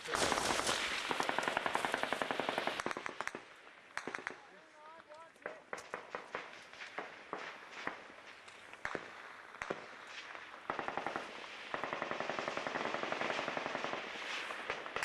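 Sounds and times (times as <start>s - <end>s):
automatic machine-gun fire: 0.0s - 3.4s, 10.7s - 15.0s.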